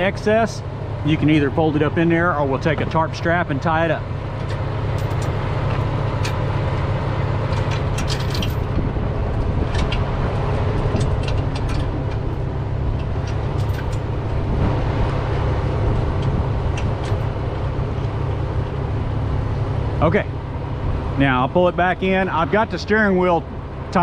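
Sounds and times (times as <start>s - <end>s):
diesel truck engine idling: 0.0s - 24.0s
metallic clinks of chains: 8.0s - 8.7s.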